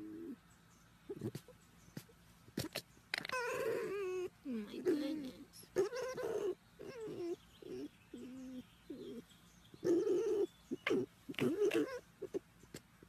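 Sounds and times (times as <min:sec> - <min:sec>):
fox whining: 0:02.6 - 0:05.1, 0:05.7 - 0:12.5.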